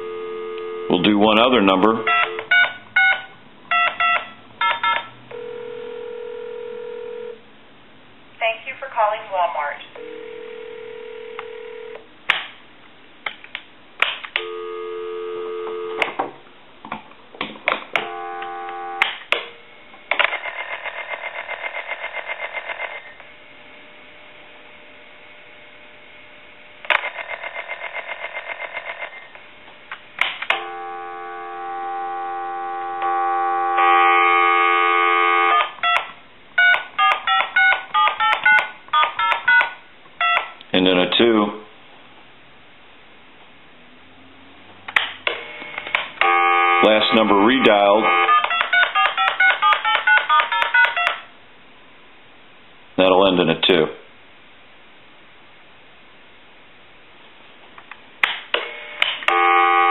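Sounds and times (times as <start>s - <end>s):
telephone dial tone: 0.0s - 1.1s, 2.0s - 7.4s, 10.0s - 12.0s, 14.4s - 16.2s, 17.9s - 19.1s, 30.5s - 40.5s, 45.6s - 51.3s, 59.3s - 59.9s
touch-tone digits dialed: 2.0s - 5.1s, 36.6s - 40.5s, 47.6s - 51.3s
buzzy ringing tone: 18.0s - 19.0s, 30.6s - 35.6s.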